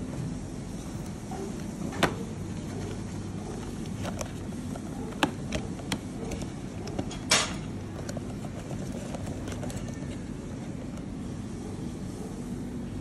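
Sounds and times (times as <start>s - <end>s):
cardboard flap clicks and taps: 1.1s - 11.0s.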